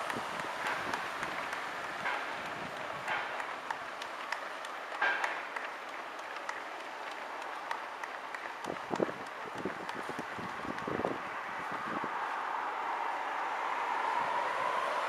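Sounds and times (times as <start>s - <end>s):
spectators clapping: 0.0s - 11.9s.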